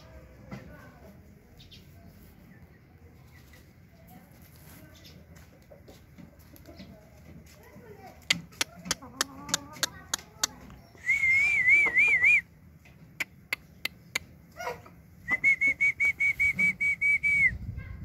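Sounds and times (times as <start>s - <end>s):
short whistle notes: 15.3s - 17.6s
warbling whistle: 15.3s - 17.6s.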